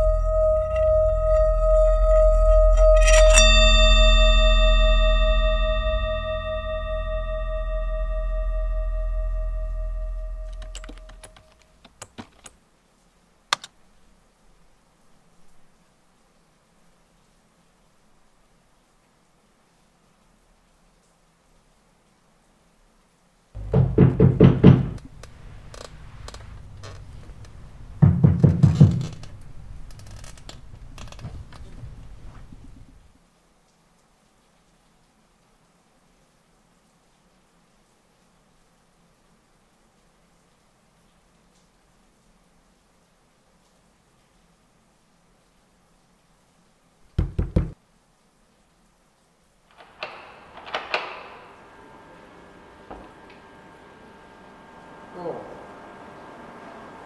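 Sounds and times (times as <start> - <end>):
low drone: 0.0 - 11.4
ringing bell-like tone: 0.0 - 11.4
heavy knocking on a door: 23.6 - 25.1, 28.0 - 29.3, 47.2 - 47.8.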